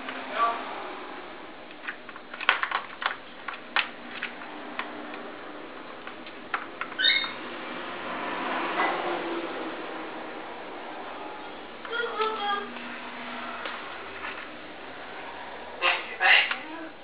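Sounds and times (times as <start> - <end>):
ferret squeak: 7.0 - 7.4.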